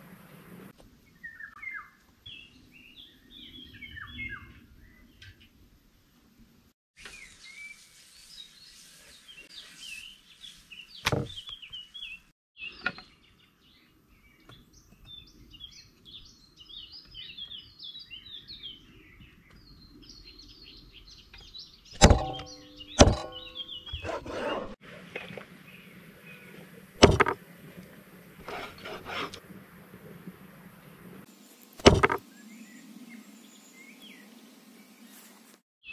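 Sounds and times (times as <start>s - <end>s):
small birds chirping: 7.0s - 24.8s
sharp ringing knocks: 22.0s - 24.2s, 27.0s - 27.4s, 31.8s - 32.2s.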